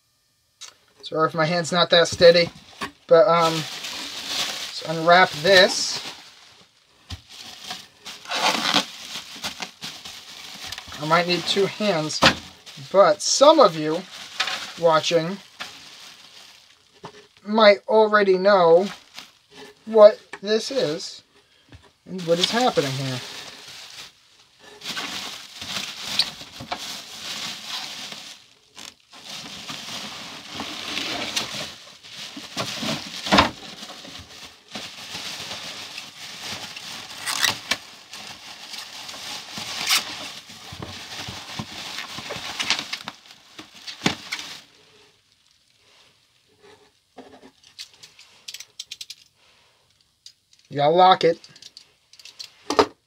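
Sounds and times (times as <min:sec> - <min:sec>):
bubble wrap rustling: 0:01.4 - 0:17.6, 0:18.4 - 0:50.5
bubble wrap snapping: 0:03.4 - 0:12.9, 0:22.3 - 0:45.8.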